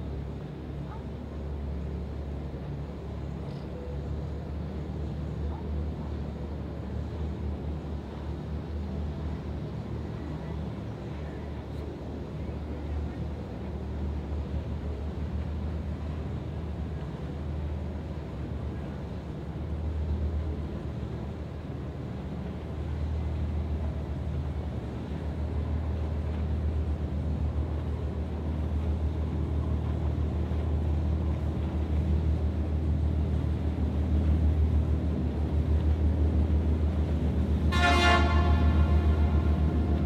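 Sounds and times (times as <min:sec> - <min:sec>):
tugboat engine throbbing: 0:24.8 - 0:40.0
boat horn blast: 0:37.6 - 0:40.0.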